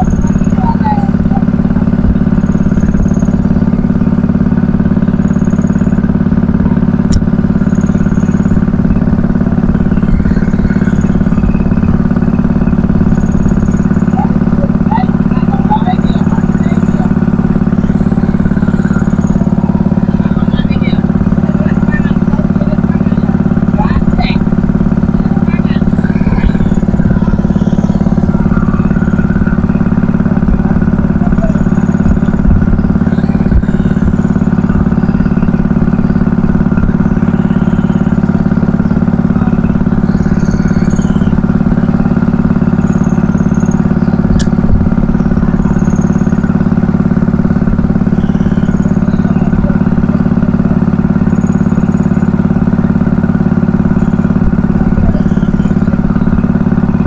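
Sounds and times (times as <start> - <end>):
boat engine humming: 0.0 - 57.0
sharp click: 44.3 - 44.6.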